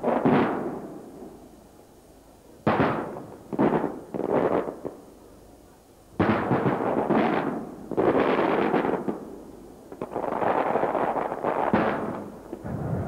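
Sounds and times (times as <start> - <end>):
firework shells booming: 0.0 - 1.0, 2.6 - 5.0, 6.2 - 9.3, 9.9 - 13.0.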